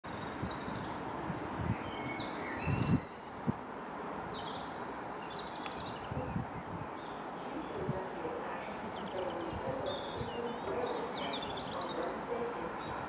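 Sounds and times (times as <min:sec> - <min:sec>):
outdoor background noise: 0:00.0 - 0:13.0
songbirds trilling and chirping: 0:00.0 - 0:13.0
low gusty rumbles: 0:05.7 - 0:13.0.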